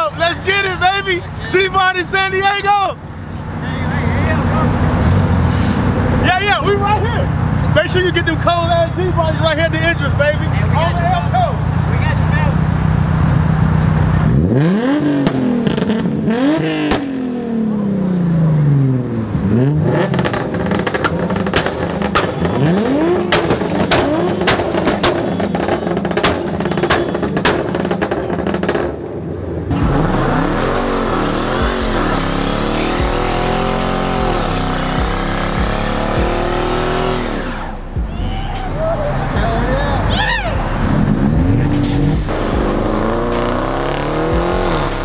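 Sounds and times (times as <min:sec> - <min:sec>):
car engines revving: 0:00.0 - 0:45.0
sharp cracks: 0:23.3 - 0:28.9.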